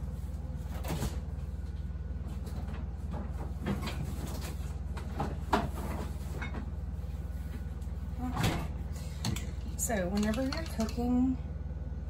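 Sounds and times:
steady low hum: 0:00.0 - 0:12.0
kitchen knocks and clicks: 0:09.2 - 0:11.1.

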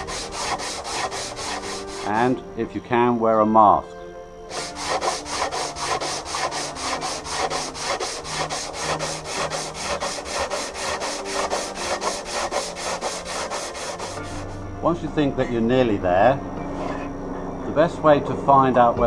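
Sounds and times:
hand sanding with sandpaper: 0:00.0 - 0:02.4, 0:04.5 - 0:14.6.

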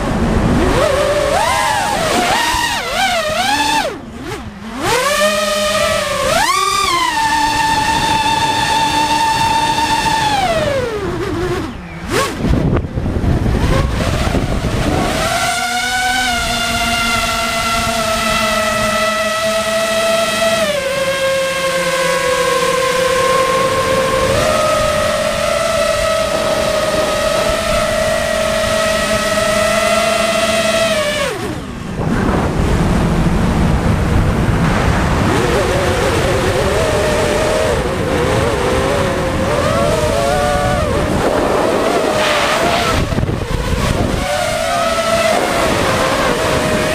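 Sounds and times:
drone motors whining: 0:00.0 - 0:46.9
rushing wind: 0:00.0 - 0:46.9.

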